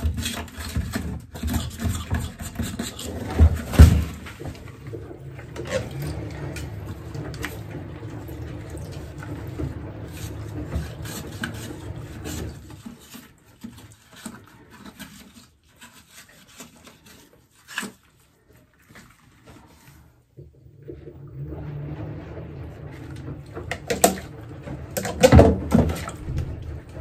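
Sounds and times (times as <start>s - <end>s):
steady low hum: 20.8s - 27.0s.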